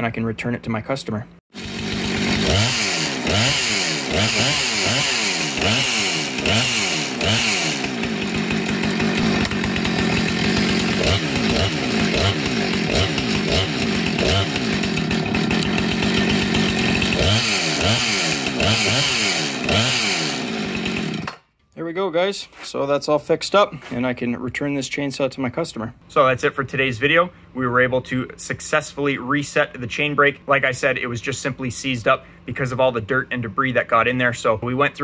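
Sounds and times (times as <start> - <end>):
chainsaw revving: 1.5 - 21.5.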